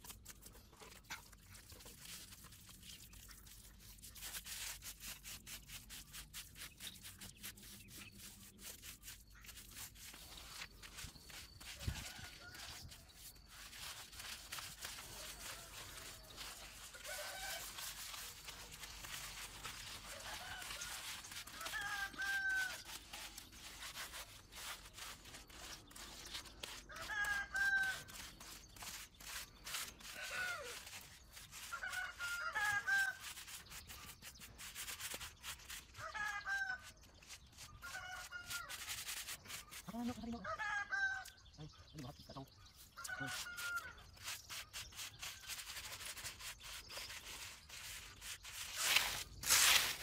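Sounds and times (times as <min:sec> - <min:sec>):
trowels scraping wet concrete: 0:00.0 - 0:40.4, 0:43.0 - 0:50.0
chickens calling: 0:30.0 - 0:30.8.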